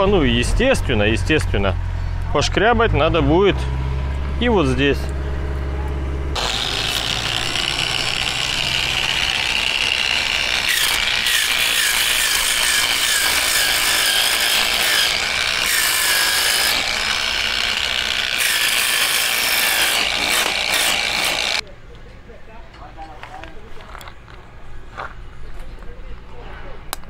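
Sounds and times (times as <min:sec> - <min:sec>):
angle grinder sanding: 0:06.4 - 0:21.6.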